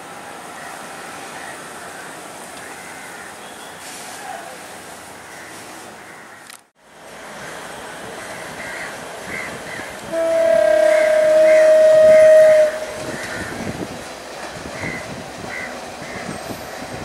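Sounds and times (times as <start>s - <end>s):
approaching train running noise: 6.8s - 17.0s
train horn blast: 10.0s - 13.6s.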